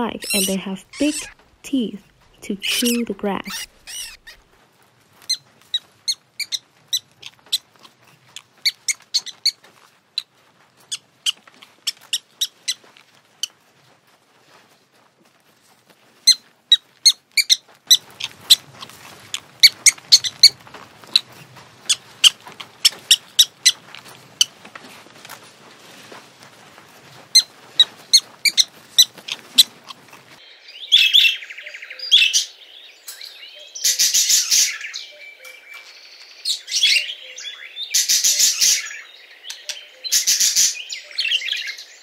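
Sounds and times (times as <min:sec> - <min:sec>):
rabbits chewing crunchy food: 0:00.0 - 0:30.4.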